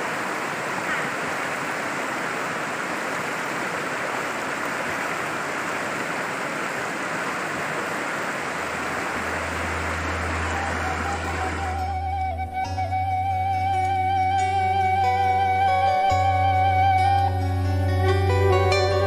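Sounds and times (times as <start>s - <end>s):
river rushing over rocks: 0.0s - 12.5s
low steady hum: 8.2s - 18.5s.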